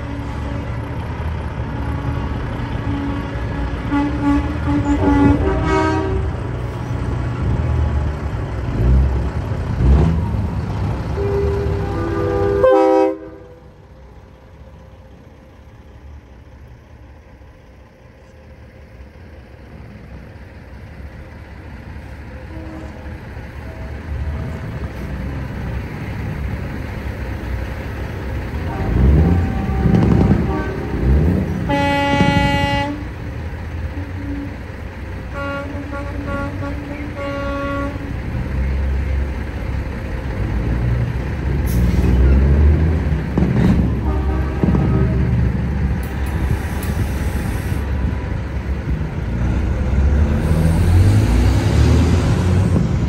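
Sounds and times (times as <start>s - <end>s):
truck diesel engine rumbling: 0.0s - 53.0s
air horn blast: 1.7s - 6.6s, 11.1s - 13.7s, 22.4s - 23.1s, 28.6s - 33.2s, 35.3s - 38.1s, 43.8s - 45.4s
short horn toots: 28.7s - 33.1s.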